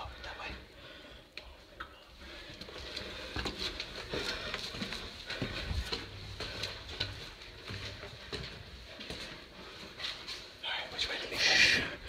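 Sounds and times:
footsteps on gritty stairs: 2.1s - 10.6s.

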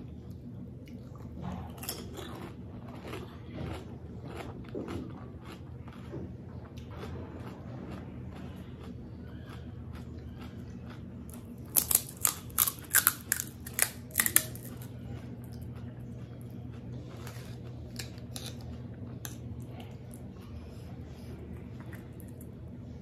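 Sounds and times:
steady low hum: 0.0s - 23.0s
crisp shell cracking: 11.7s - 14.8s.

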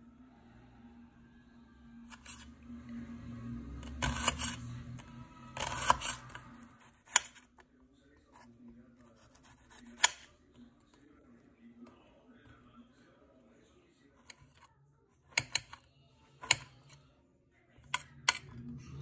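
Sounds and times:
knife slicing onion: 2.1s - 2.5s, 3.8s - 7.4s, 9.4s - 10.3s.

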